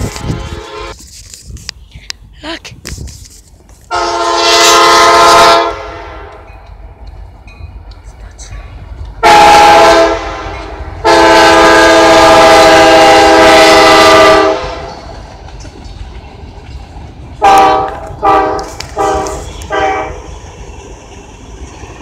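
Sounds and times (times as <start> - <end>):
locomotive air horn blasts: 0.0 - 1.0, 3.9 - 6.5, 9.2 - 15.1, 17.4 - 20.3.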